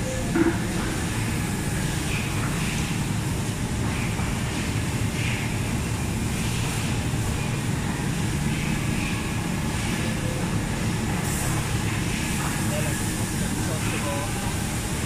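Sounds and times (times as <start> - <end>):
factory machinery drone: 0.0 - 15.0
ventilation: 0.0 - 15.0.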